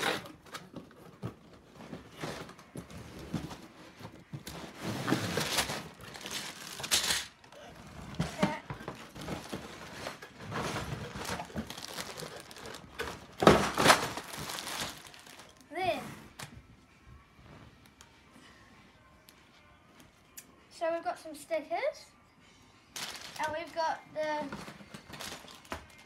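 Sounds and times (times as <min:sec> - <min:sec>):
cardboard scraping and sliding: 0:04.4 - 0:05.8
plastic bags crinkling: 0:05.2 - 0:15.7, 0:23.0 - 0:23.8, 0:24.6 - 0:26.0.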